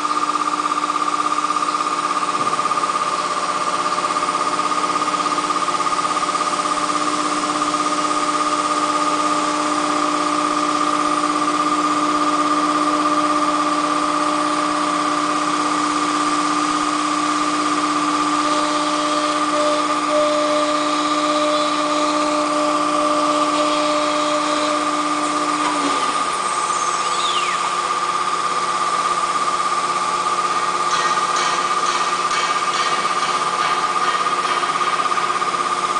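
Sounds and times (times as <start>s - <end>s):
low machine hum: 0.0s - 35.9s
router spindle whine: 0.0s - 35.9s.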